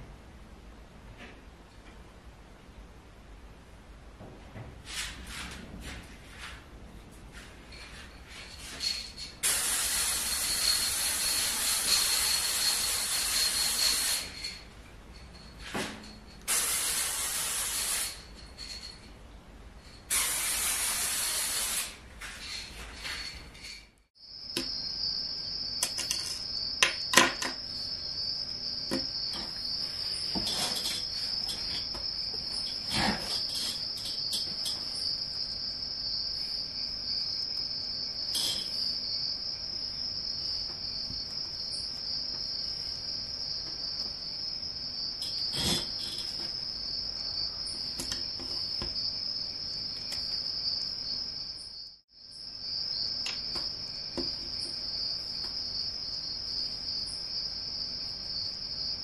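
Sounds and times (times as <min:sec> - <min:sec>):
spray paint can hissing: 0:09.4 - 0:14.4, 0:16.5 - 0:18.3, 0:20.1 - 0:22.0.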